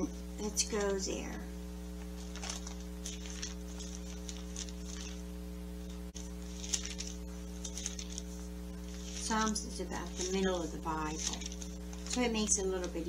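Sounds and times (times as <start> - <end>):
electrical mains hum: 0.0 - 13.0
thin pages rustling: 1.9 - 13.0.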